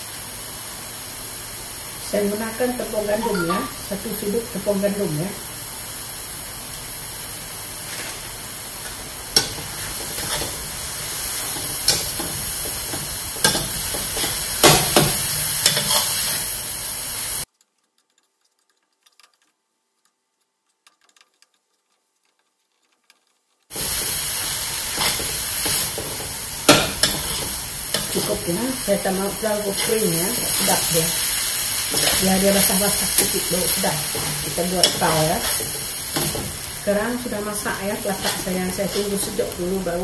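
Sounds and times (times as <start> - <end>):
food sizzling in a wok: 0.0 - 17.5, 23.7 - 40.0
metal spatula scraping: 7.8 - 16.4, 24.8 - 28.5, 29.8 - 36.7, 38.1 - 39.4.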